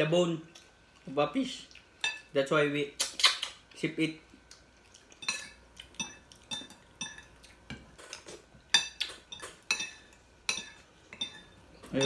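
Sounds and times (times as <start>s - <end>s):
cutlery clinking on plates: 5.2s - 12.0s.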